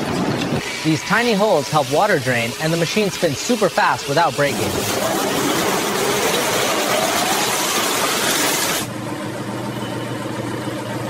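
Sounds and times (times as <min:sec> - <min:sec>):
washing machine drum spinning: 0:00.0 - 0:08.9.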